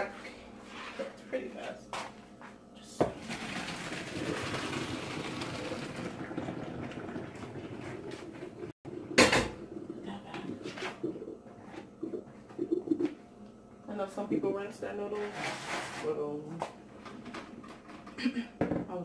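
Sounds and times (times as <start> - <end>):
water pouring into sink: 3.1 - 10.0.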